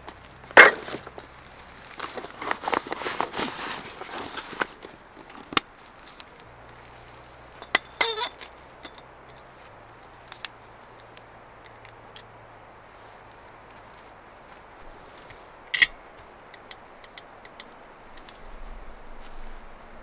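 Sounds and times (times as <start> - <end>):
gear bag rustling and clicking: 0.0 - 9.5
metal click and ring: 15.7 - 16.1.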